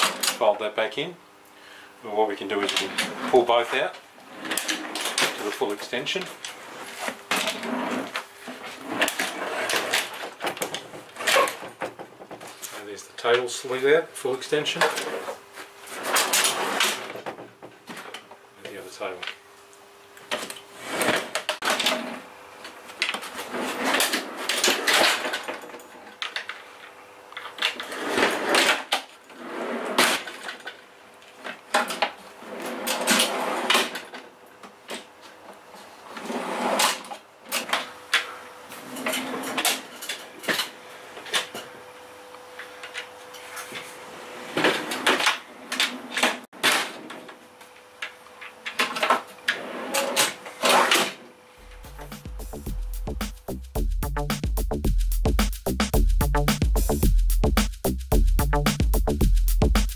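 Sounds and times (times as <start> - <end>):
metal drawer slides rolling: 4.3 - 5.4, 7.3 - 10.2, 15.9 - 17.2, 20.8 - 22.2, 32.4 - 34.0, 36.2 - 37.1.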